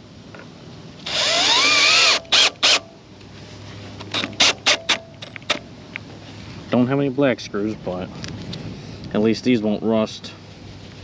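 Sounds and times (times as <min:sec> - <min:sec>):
cordless drill driving a screw: 0:01.0 - 0:02.8.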